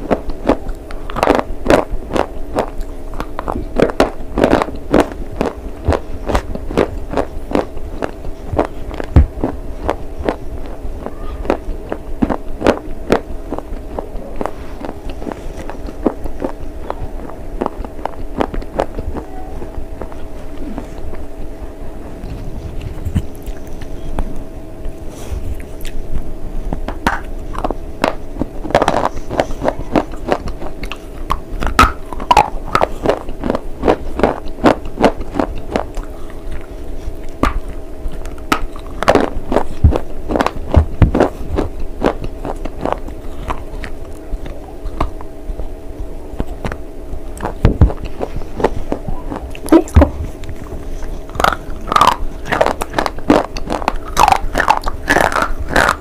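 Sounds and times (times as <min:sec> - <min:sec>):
crunchy biting and chewing: 0:00.0 - 0:21.4, 0:22.1 - 0:45.3, 0:46.3 - 0:56.0.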